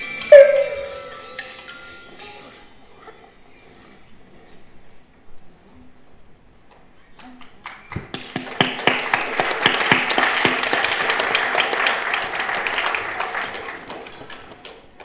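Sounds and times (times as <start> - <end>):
audience applause: 8.1 - 14.7.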